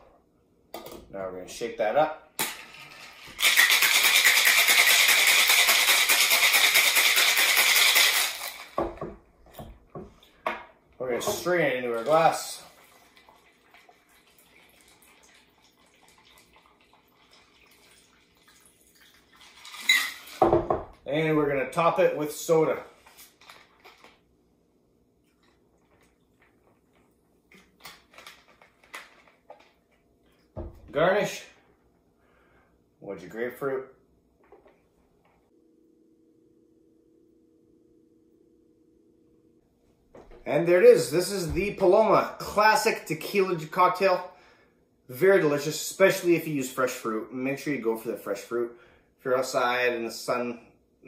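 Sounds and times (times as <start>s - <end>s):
ice rattling in cocktail shaker: 2.8s - 8.8s, 19.0s - 20.4s
fizzing: 12.0s - 20.4s
soda pouring over ice: 12.0s - 20.4s.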